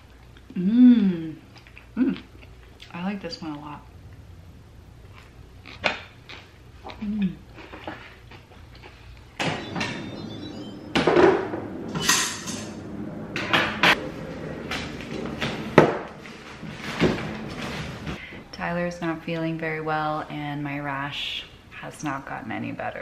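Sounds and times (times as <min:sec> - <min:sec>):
metal pot and lid clanking: 0:11.0 - 0:12.8.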